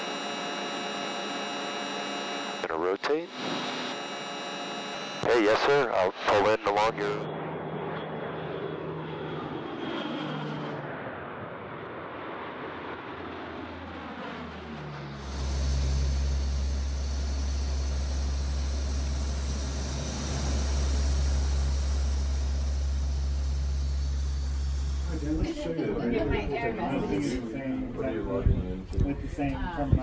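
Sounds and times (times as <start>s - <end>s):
low drone of aircraft engines: 5.2s - 26.8s
turboprop aircraft passing overhead: 7.2s - 28.8s.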